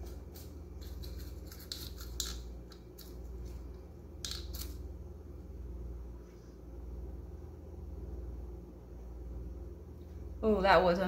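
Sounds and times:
aluminium foil crinkling: 0.0s - 2.4s
steady low hum: 0.0s - 11.0s.

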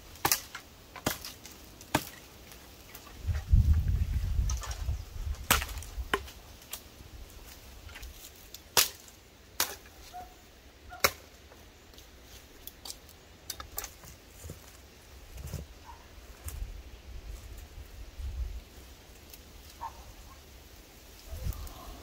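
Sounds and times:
machete chopping wood: 0.2s - 2.2s, 5.4s - 6.4s, 8.7s - 9.9s, 11.0s - 11.3s.

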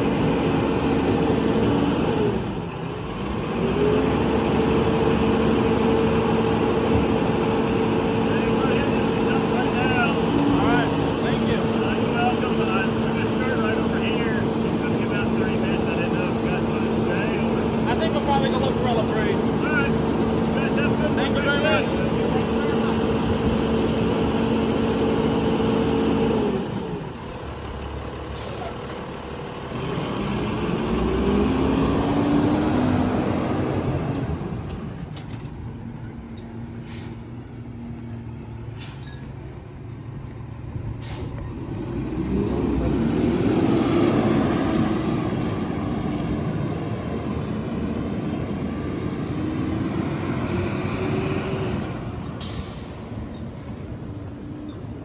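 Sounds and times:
garbage truck engine: 0.0s - 55.0s
air brake hisses: 28.3s - 28.8s, 36.4s - 37.4s, 38.0s - 39.4s, 41.0s - 41.5s, 52.4s - 53.8s.

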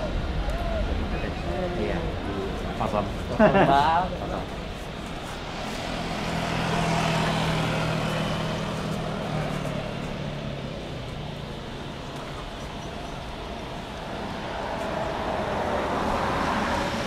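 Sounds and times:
jet engines roaring: 0.0s - 17.0s.

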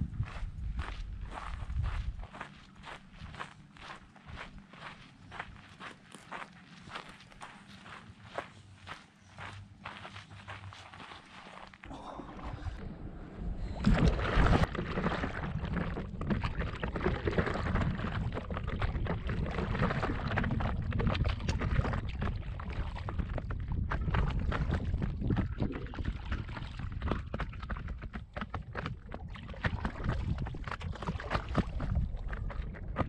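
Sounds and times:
steady low rumble: 11.8s - 27.1s
water splashing around paddleboard: 13.8s - 33.0s.

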